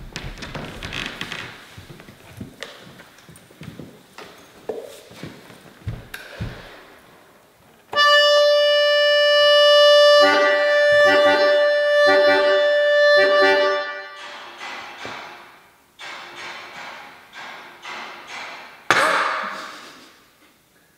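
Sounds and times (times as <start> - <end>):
button accordion: 8.0 - 14.2.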